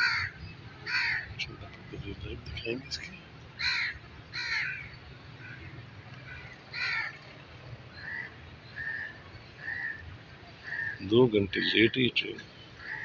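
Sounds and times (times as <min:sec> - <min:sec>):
crows cawing: 0:00.0 - 0:01.4, 0:03.6 - 0:07.3, 0:07.9 - 0:10.0, 0:10.6 - 0:11.0, 0:12.8 - 0:13.0.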